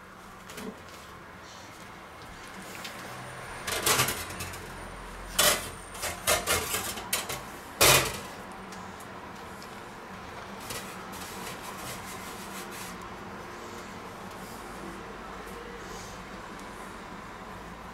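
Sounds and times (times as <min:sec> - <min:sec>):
knocks and clatters on kitchen counter: 0:05.4 - 0:08.3.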